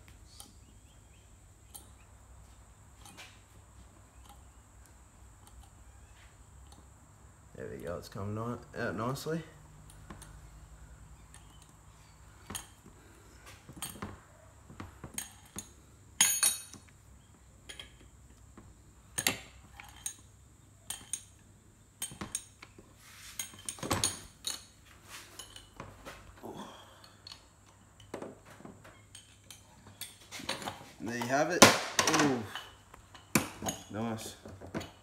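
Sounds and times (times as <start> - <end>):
hand tools clinking on metal: 15.2 - 16.8, 32.0 - 35.0.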